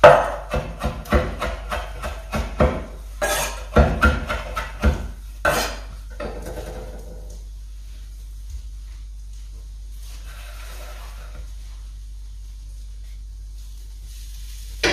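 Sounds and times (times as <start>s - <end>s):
knife chopping on wooden board: 0.0s - 5.7s.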